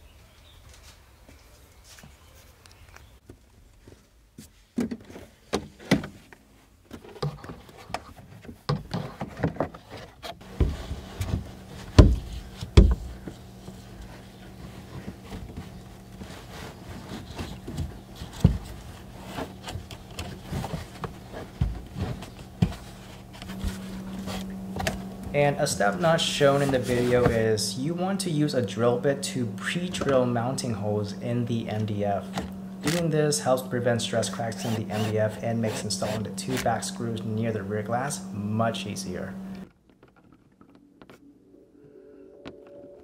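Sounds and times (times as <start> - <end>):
handling knocks and rustling: 1.8 - 28.8
steady low hum: 10.4 - 39.7.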